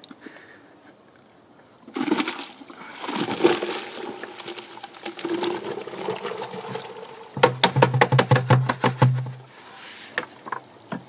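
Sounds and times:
powder pouring into water: 0:02.0 - 0:07.3.

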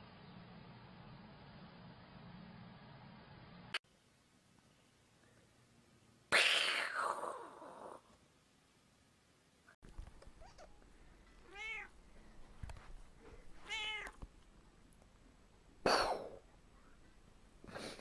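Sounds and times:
cat meowing: 0:10.3 - 0:10.8, 0:11.4 - 0:12.0, 0:13.6 - 0:14.2.

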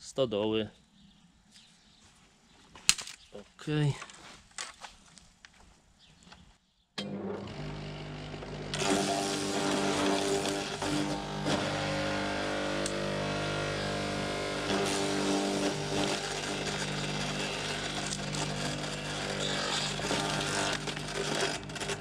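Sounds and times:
shredder motor hum: 0:07.0 - 0:22.0
branches crunching in cutter: 0:07.1 - 0:22.0.

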